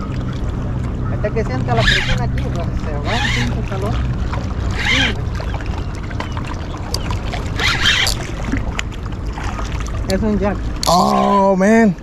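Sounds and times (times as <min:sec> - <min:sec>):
water lapping at shore: 0:00.0 - 0:12.0
fishing reel cranking: 0:03.0 - 0:03.6, 0:04.7 - 0:05.2, 0:07.6 - 0:08.2.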